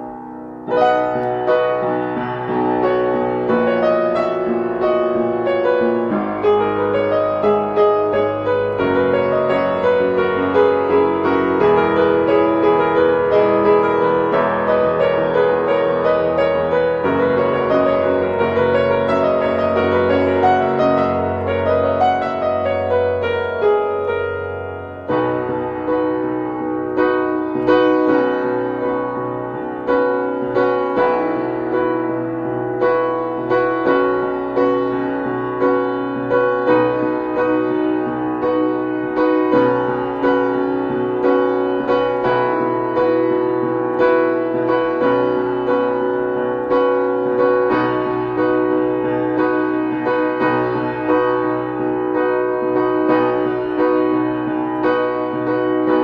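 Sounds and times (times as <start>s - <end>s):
slow piano chords: 0.0s - 56.0s.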